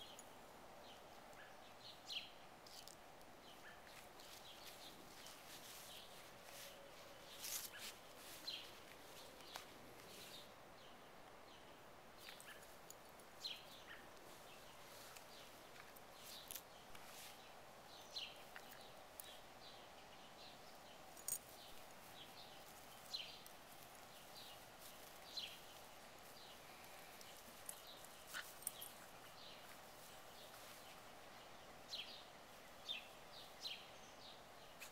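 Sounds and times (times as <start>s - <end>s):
soft crackles: 2.6s - 10.5s, 12.2s - 17.6s, 20.7s - 31.5s.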